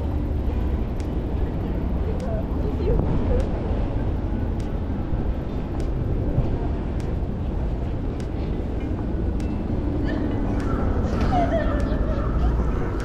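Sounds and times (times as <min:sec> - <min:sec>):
city street rumble: 0:00.0 - 0:13.0
faint ticks: 0:00.9 - 0:02.4, 0:03.4 - 0:03.6, 0:04.5 - 0:04.9, 0:05.7 - 0:06.1, 0:06.9 - 0:07.2, 0:08.1 - 0:09.8.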